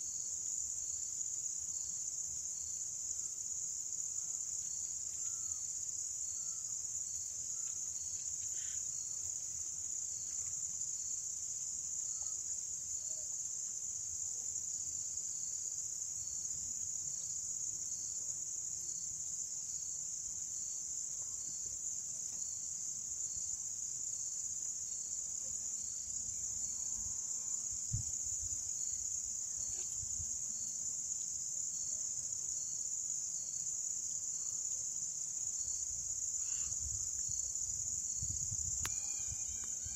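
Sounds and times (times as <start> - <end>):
crickets trilling: 0.1 - 39.9
faint pulsing insect note: 4.0 - 7.8, 12.0 - 13.4, 24.1 - 32.8, 35.4 - 39.9
faint chirps: 36.4 - 36.9.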